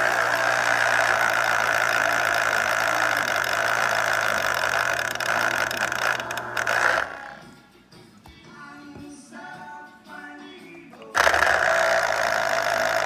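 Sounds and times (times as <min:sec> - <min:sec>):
electric juicer motor running: 0:00.0 - 0:07.5, 0:11.1 - 0:13.0.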